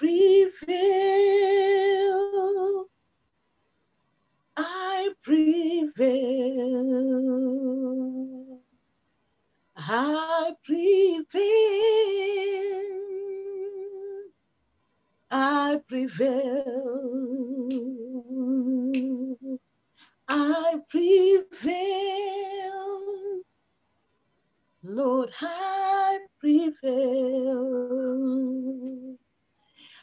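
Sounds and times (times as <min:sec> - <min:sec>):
woman singing unaccompanied: 0:00.0 - 0:02.9, 0:04.6 - 0:08.6, 0:09.8 - 0:14.3, 0:15.3 - 0:19.6, 0:20.2 - 0:23.5, 0:24.8 - 0:29.2.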